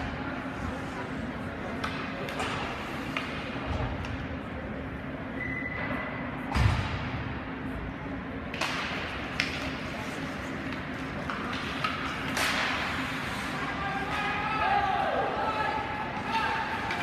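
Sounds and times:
steady arena hum: 0:00.0 - 0:17.0
hockey sticks and puck knocking: 0:01.7 - 0:04.2, 0:08.5 - 0:14.4
skates scraping on ice: 0:09.3 - 0:14.4.

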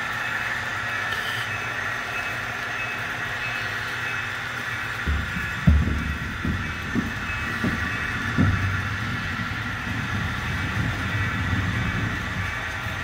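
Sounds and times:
model trains whirring: 0:00.0 - 0:13.0
soft low thumps: 0:05.0 - 0:13.0.

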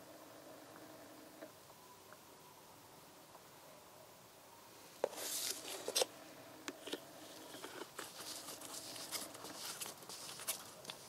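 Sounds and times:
rustling: 0:05.0 - 0:06.1, 0:07.2 - 0:11.0.

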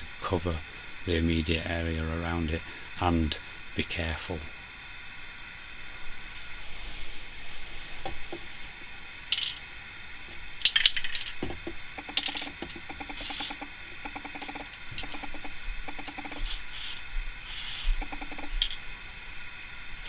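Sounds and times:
aerosol spray can hissing: 0:16.4 - 0:18.0.

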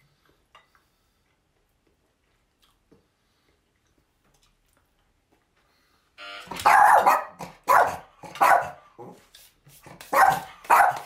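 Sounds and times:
dog barking loudly: 0:06.6 - 0:08.8, 0:10.0 - 0:11.0.

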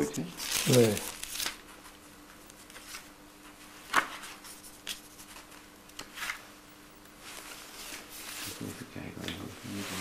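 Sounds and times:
paper sheets rustling: 0:00.4 - 0:02.0, 0:02.6 - 0:06.5.

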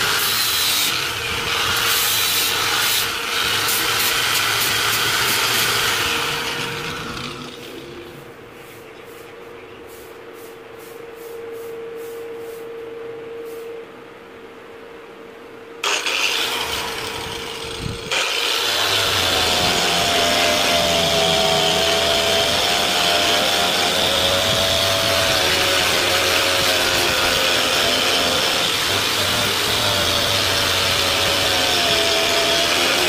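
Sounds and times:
angle grinder whining: 0:00.0 - 0:08.3, 0:15.8 - 0:33.0
faint steady hum: 0:07.0 - 0:15.8.

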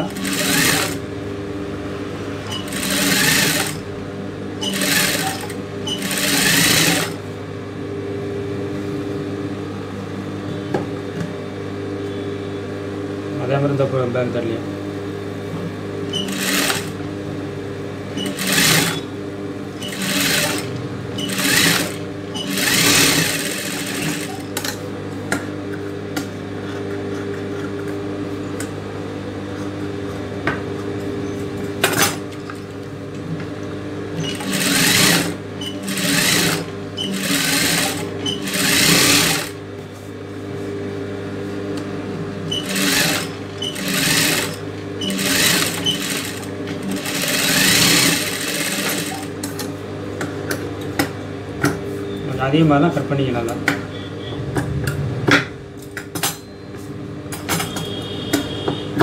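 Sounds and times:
sewing machine stitching: 0:00.0 - 0:01.0, 0:02.5 - 0:03.8, 0:04.6 - 0:07.2, 0:16.2 - 0:17.0, 0:18.2 - 0:19.1, 0:19.8 - 0:24.5, 0:34.2 - 0:39.6, 0:42.6 - 0:49.4
motor humming: 0:18.1 - 0:24.6.

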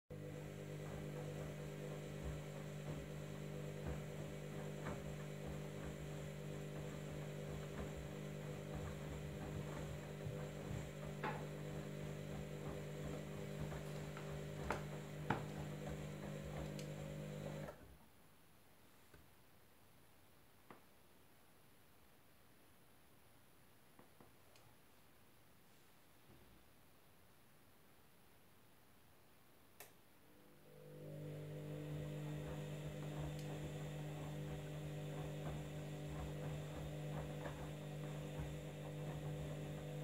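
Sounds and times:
washing machine motor humming: 0:00.1 - 0:17.8, 0:30.3 - 0:40.0
wet laundry knocking: 0:00.2 - 0:17.6, 0:32.0 - 0:40.0.

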